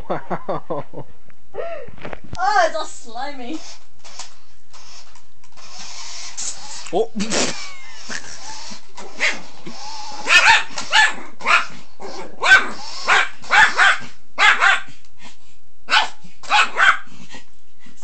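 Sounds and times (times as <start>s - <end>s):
small dog barking: 10.2s - 14.9s, 15.9s - 17.1s.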